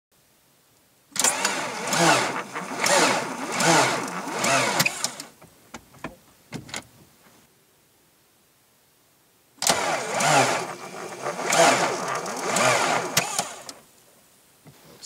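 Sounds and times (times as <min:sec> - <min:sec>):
diesel engine cranking slowly: 0:01.2 - 0:05.4, 0:09.6 - 0:13.8.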